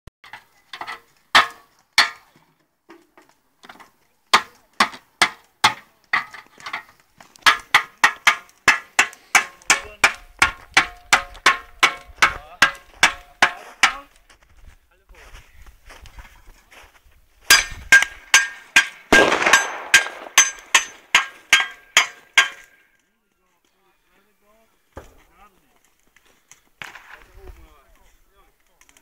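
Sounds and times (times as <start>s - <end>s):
metal churns struck ringing: 17.5s - 22.7s.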